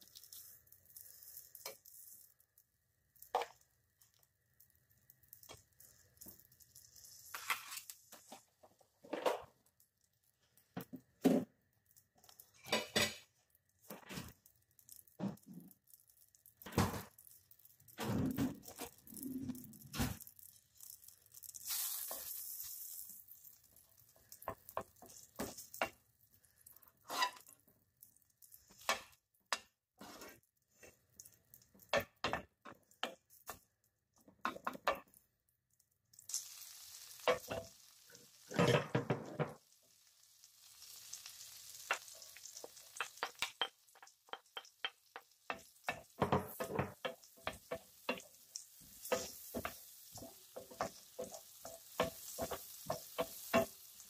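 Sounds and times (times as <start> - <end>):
butter sizzling in frying pan: 0.0 - 8.8, 9.4 - 54.0
wooden spoon scraping pan: 27.0 - 27.6, 30.0 - 30.4
spoon knocking against pan: 43.0 - 48.2.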